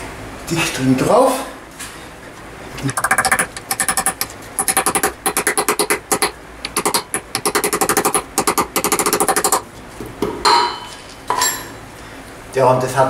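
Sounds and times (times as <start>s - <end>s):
hammer tapping metal: 2.9s - 9.6s, 10.2s - 11.7s.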